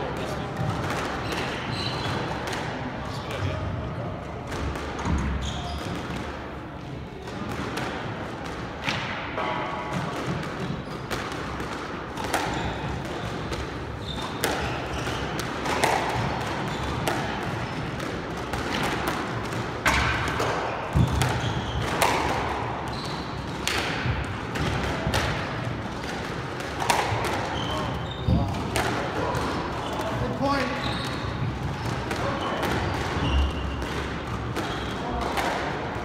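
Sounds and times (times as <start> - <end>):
sneaker squeaks on hardwood: 1.2 - 2.4, 5.0 - 6.2, 10.6 - 11.2, 12.4 - 18.0, 20.7 - 23.7, 27.0 - 35.0
squash ball smacks: 7.2 - 30.2, 31.0 - 36.0.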